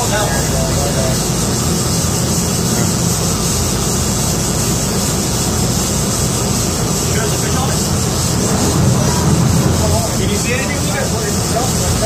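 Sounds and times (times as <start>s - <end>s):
boat engines running: 0.0s - 12.0s
wind and sea rushing: 7.4s - 11.6s.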